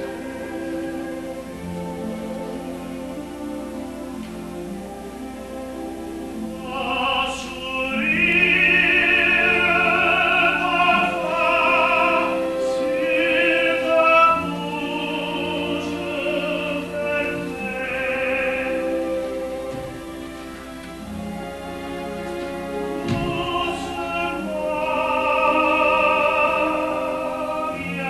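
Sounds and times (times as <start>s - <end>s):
classical accompaniment: 0.0s - 28.0s
operatic voice singing: 6.5s - 19.7s, 22.9s - 28.0s.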